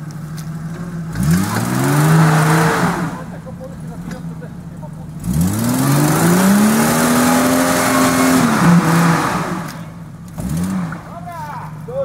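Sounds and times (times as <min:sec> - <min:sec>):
tyres churning through mud: 0:00.0 - 0:12.0
engine revving hard: 0:01.1 - 0:03.4, 0:05.2 - 0:11.3.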